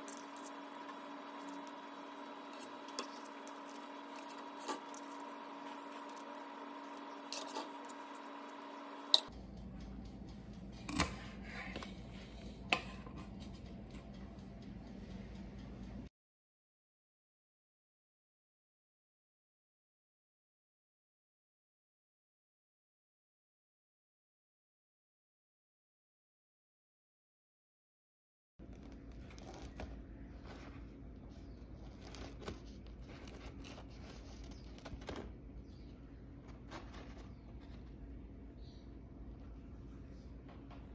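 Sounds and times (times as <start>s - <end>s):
pastry shells crackling under knife: 0.0s - 9.3s
steady low hum: 0.0s - 16.1s, 28.6s - 40.9s.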